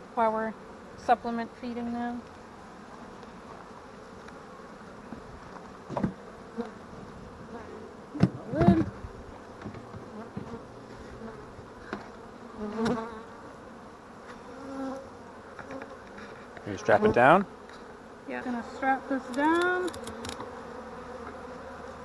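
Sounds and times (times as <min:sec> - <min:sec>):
bee flying close by: 0:00.0 - 0:22.0
bees buzzing: 0:00.0 - 0:22.0
wooden hive knocks: 0:05.1 - 0:06.7, 0:08.2 - 0:10.6, 0:12.7 - 0:13.1.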